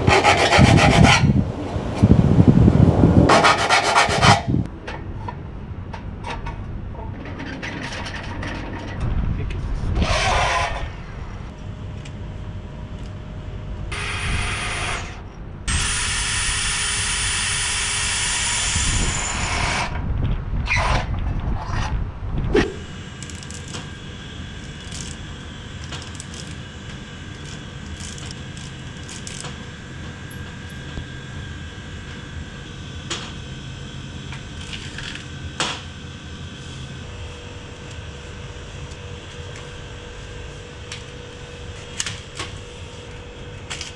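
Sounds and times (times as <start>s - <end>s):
cordless power tool on metal: 15.7s - 19.9s.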